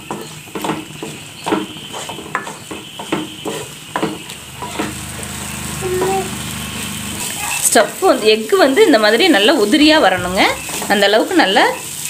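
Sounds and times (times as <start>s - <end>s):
wooden spatula scraping a pan: 0.0s - 5.0s
food sizzling: 0.0s - 12.0s
low steady hum: 9.8s - 11.1s.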